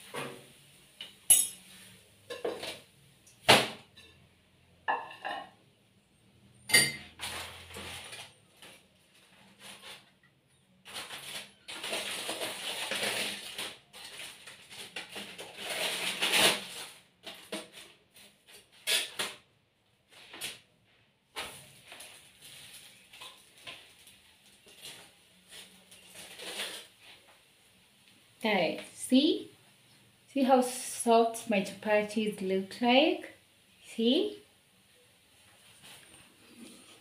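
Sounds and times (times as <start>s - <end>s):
rustling of hands at work: 7.1s - 19.4s, 35.4s - 37.0s
foil crinkling: 7.2s - 10.2s, 10.8s - 19.4s, 21.4s - 27.3s.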